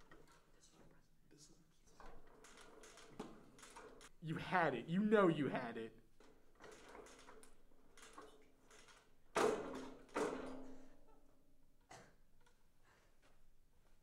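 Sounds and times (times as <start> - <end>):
projector screen clanking: 1.9 - 4.2, 6.3 - 10.8.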